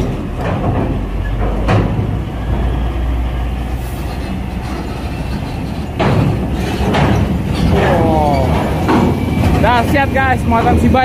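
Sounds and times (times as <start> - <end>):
diesel engine rumble: 0.0 - 11.0.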